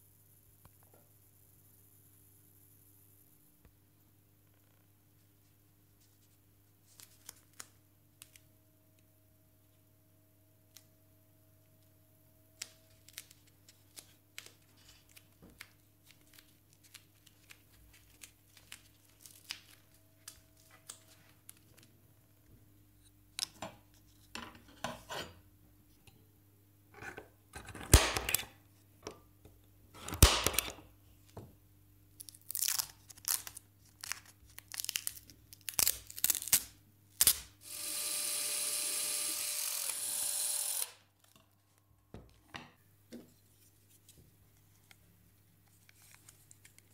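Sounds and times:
masking tape ripping: 0:32.2 - 0:37.6
clicks and rustles of handling: 0:41.2 - 0:46.9.

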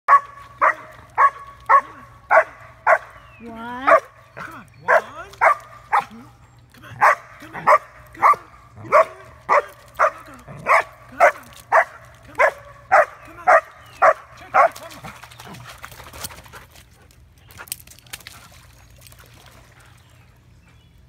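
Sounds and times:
dog barking: 0:00.1 - 0:03.1, 0:04.9 - 0:06.1, 0:07.0 - 0:14.7.

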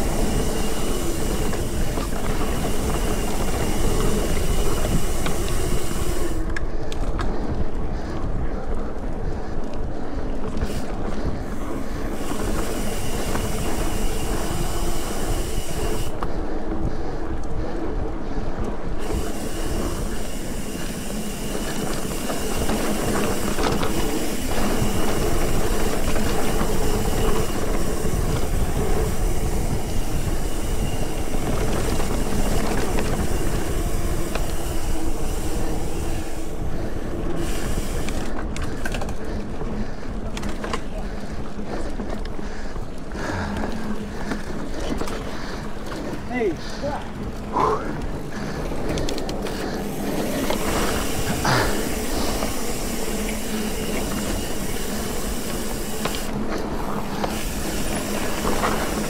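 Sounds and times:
faint high whine: 0:00.0 - 0:06.6
low drone: 0:00.0 - 0:59.0
rushing and rumbling of travel: 0:00.0 - 0:59.0.

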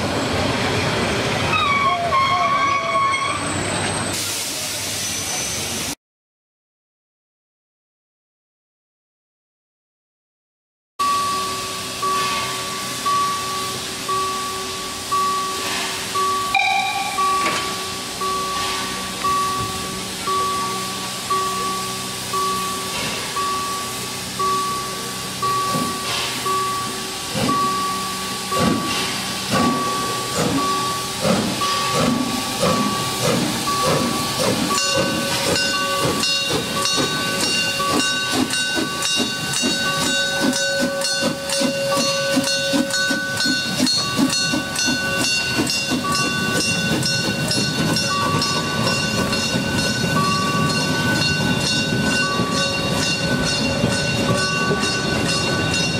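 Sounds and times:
steady high-pitched tones: 0:11.0 - 0:55.9
steam locomotive chuffing: 0:11.0 - 0:55.9
beeping warning tone: 0:16.4 - 0:20.8.

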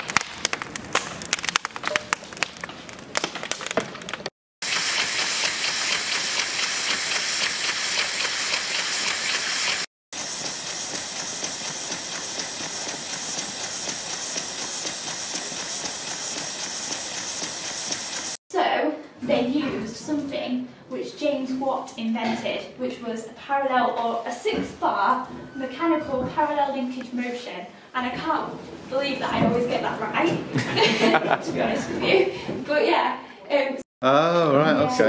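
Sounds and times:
model steam engine hissing: 0:04.6 - 0:18.4.

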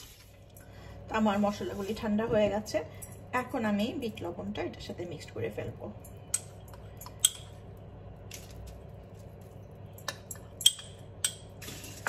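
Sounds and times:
metal spoon clinking on ceramic bowls: 0:10.0 - 0:11.5.

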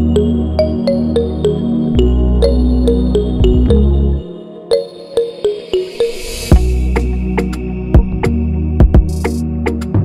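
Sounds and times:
music with bass and drums: 0:03.4 - 0:04.0, 0:06.5 - 0:10.0.

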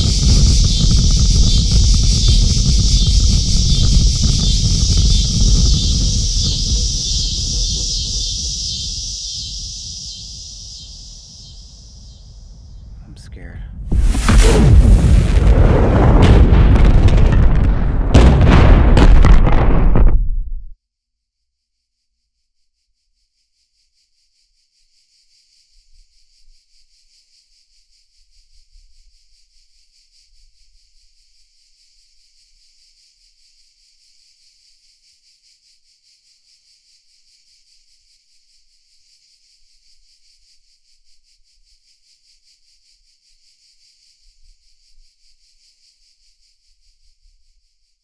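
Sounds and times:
cicada chorus buzzing: 0:00.0 - 0:13.0, 0:22.8 - 0:48.0.

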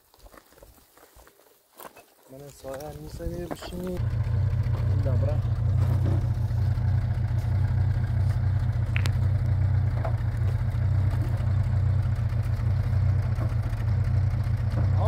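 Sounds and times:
engine idling: 0:03.7 - 0:15.0.

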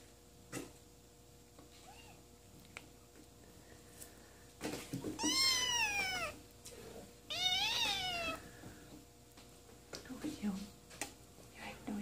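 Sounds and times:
kitten meowing: 0:05.2 - 0:06.4, 0:07.3 - 0:08.4.

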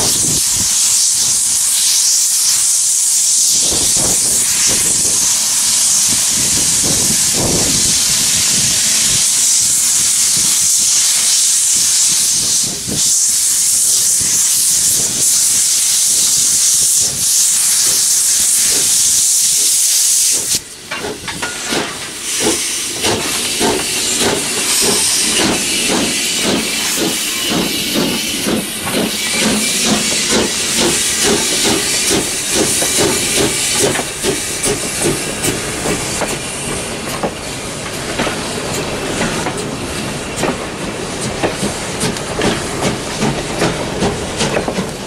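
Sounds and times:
steam hissing: 0:00.0 - 0:45.0
wheels clattering on rails: 0:20.8 - 0:45.0.

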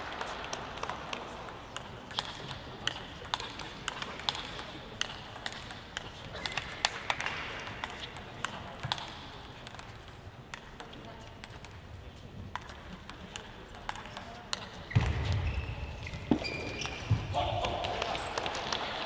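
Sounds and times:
table tennis ball clicks: 0:00.2 - 0:11.8, 0:12.5 - 0:15.2.

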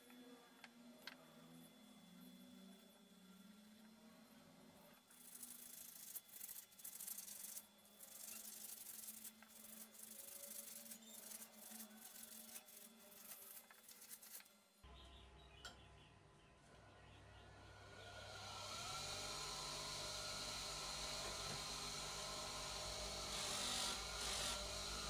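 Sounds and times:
sandpaper scratching on metal: 0:05.1 - 0:14.5
bench grinder motor humming: 0:17.5 - 0:25.0.

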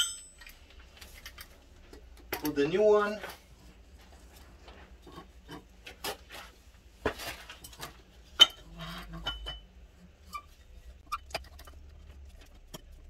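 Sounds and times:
short metallic ring: 0:00.0 - 0:00.4
metal clinks and knocks: 0:00.0 - 0:01.5.

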